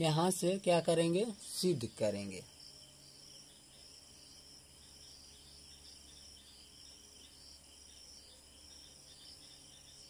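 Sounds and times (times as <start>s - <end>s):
faint insect chirring: 0.0s - 10.0s.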